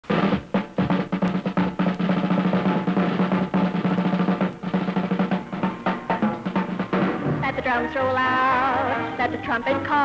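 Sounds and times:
snare drum roll: 0.0s - 7.6s
bass drum beats: 0.0s - 10.0s.

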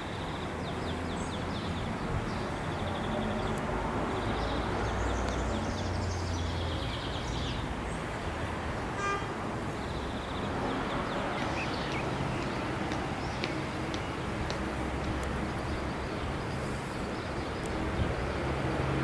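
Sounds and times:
birds chirping: 9.7s - 18.0s.

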